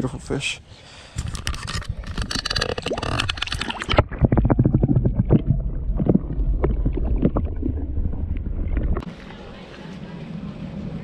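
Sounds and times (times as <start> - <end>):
water splashing and sloshing: 1.6 - 9.3
muffled underwater rumble: 2.0 - 11.0.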